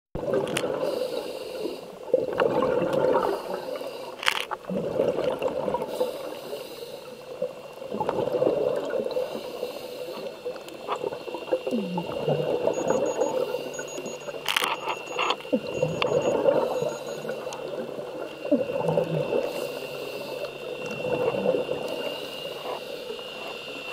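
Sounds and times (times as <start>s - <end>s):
faint steady whine: 0.2s - 23.9s
underwater bubbles rushing: 0.2s - 23.9s
sharp clicks: 13.8s - 17.6s.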